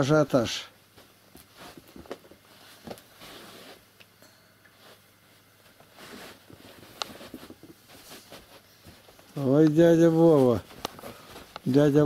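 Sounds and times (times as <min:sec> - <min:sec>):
boots shuffling on a rug: 0:05.8 - 0:12.0.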